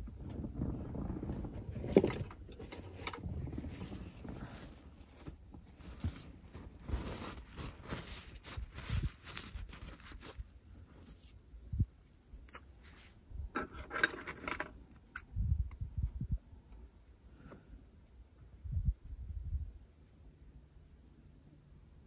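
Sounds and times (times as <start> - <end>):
paper sheets handled on cloth mat: 3.5 - 11.4
tissue paper rustling: 3.5 - 11.4.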